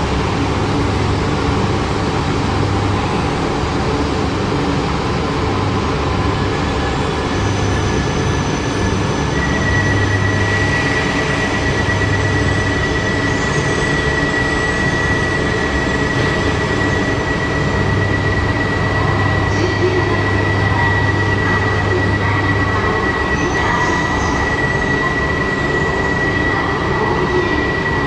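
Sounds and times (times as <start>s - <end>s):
steady high whine: 0.0s - 28.0s
train running noise: 0.0s - 28.0s.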